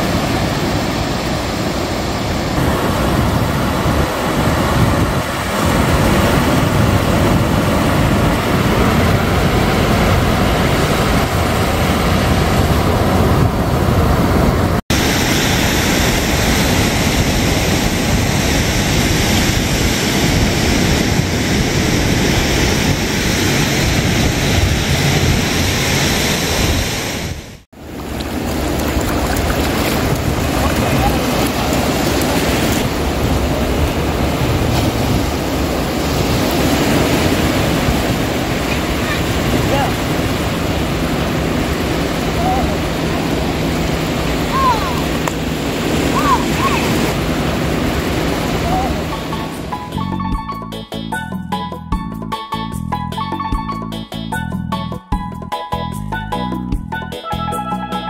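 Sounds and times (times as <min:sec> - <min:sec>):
wind rumbling on microphone: 0:00.0 - 0:49.8
ocean surf breaking on beach: 0:00.0 - 0:50.0.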